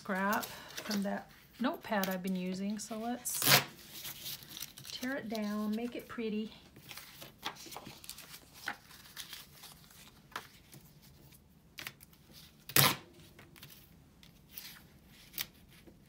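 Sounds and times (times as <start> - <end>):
paper tearing and rustling: 3.0 - 5.8, 6.8 - 15.9
sharp paper rip: 3.3 - 4.2, 12.7 - 13.1.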